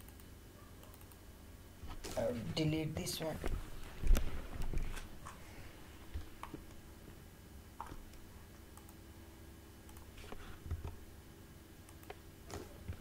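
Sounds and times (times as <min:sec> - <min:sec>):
computer mouse clicks: 0:00.0 - 0:01.2, 0:07.8 - 0:09.0, 0:09.8 - 0:11.0, 0:11.9 - 0:13.0
low steady hum: 0:00.0 - 0:13.0.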